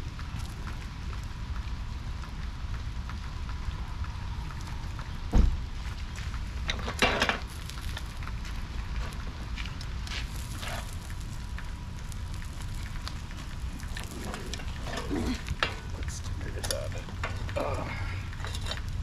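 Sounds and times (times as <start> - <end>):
campfire crackling and popping: 0.0 - 19.0
wind rumbling on microphone: 0.0 - 19.0
dull thump: 5.3 - 5.6
metallic clatter on grill grate: 6.7 - 8.4, 10.0 - 13.2, 13.8 - 17.6, 18.2 - 19.0.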